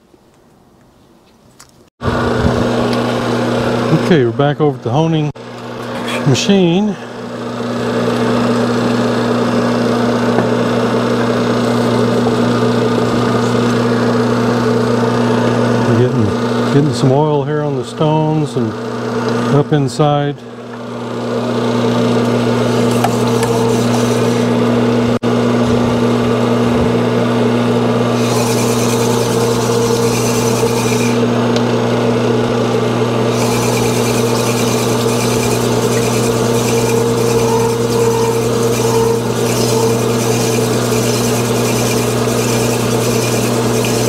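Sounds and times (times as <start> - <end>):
stones grinding inside metal bore: 22.2 - 24.9, 28.1 - 31.5, 33.2 - 44.0
honing machine motor hum: 27.9 - 44.0.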